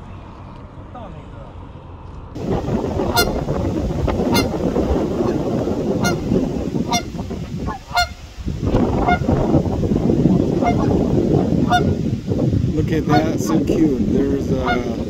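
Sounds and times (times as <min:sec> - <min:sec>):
steady rushing background noise: 0:00.0 - 0:15.0
goose honking: 0:02.6 - 0:08.3, 0:09.0 - 0:09.3, 0:10.5 - 0:12.1, 0:14.5 - 0:15.0.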